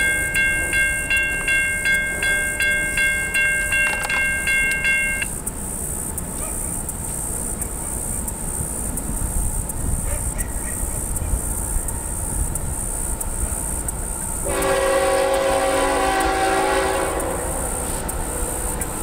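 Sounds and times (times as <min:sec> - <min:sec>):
locomotive horn blast: 0:14.4 - 0:18.9.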